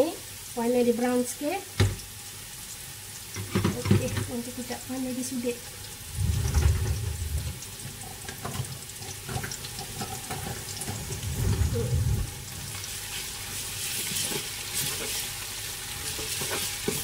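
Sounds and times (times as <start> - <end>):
lemongrass sizzling in hot oil: 0.0 - 17.0
low bump: 6.1 - 7.6, 11.1 - 12.5.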